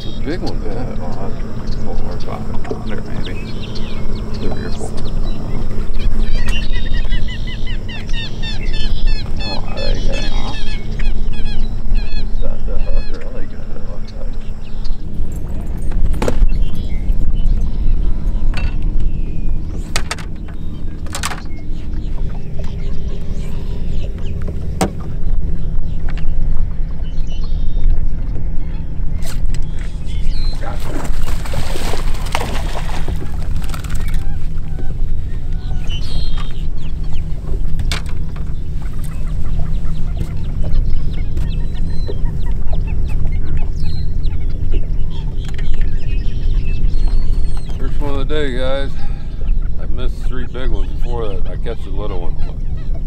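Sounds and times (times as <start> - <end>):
birds chirping and squawking: 0.0 - 53.0
boat motor running: 0.0 - 53.0
faint steady hum: 0.0 - 53.0
low rumble: 0.0 - 53.0
knocks and rattle on hull: 15.0 - 17.8, 18.4 - 23.3, 30.5 - 43.7.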